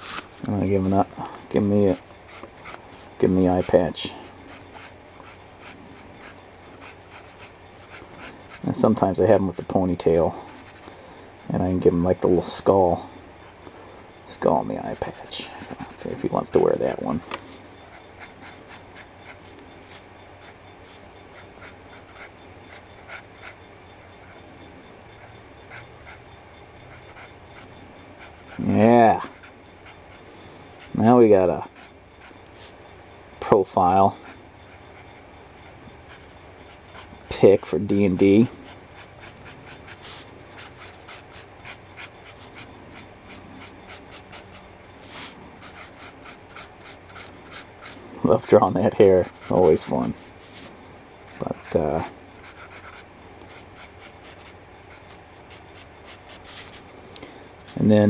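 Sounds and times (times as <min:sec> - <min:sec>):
pencil scratching on paper: 0:04.5 - 0:08.7, 0:10.5 - 0:11.5, 0:14.8 - 0:17.0, 0:20.4 - 0:23.6, 0:27.0 - 0:28.7, 0:34.2 - 0:37.7, 0:38.6 - 0:48.0, 0:49.1 - 0:50.6, 0:52.4 - 0:56.8.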